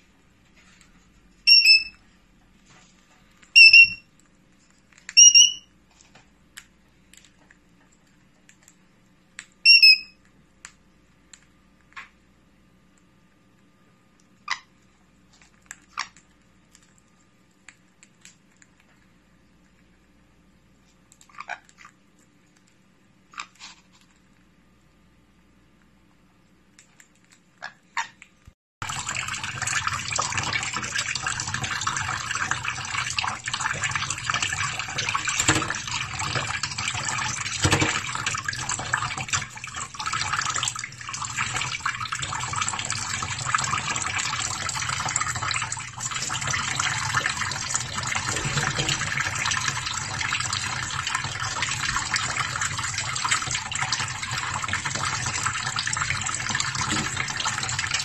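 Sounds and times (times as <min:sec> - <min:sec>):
tap water running into sink: 0:28.8 - 0:58.0
water splashing over bird: 0:28.9 - 0:58.0.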